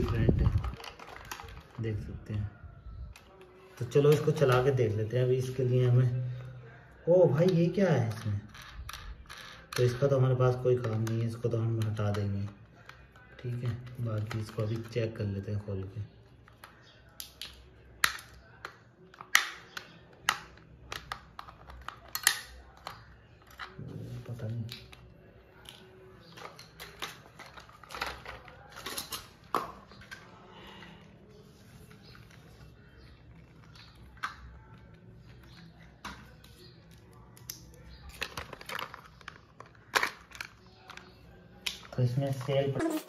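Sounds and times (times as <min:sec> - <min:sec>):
plastic toy clicks and knocks: 0:07.4 - 0:15.0, 0:16.6 - 0:23.7.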